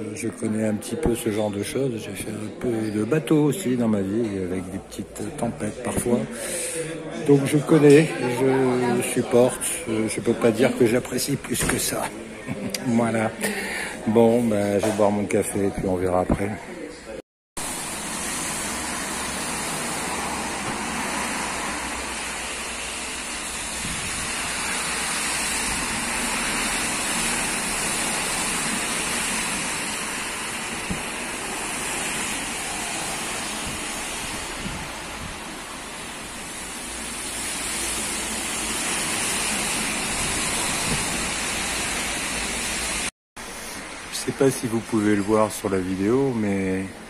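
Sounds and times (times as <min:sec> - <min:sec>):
heavy rain pouring: 0:05.7 - 0:12.4, 0:17.6 - 0:47.0
gusting wind: 0:17.6 - 0:43.1.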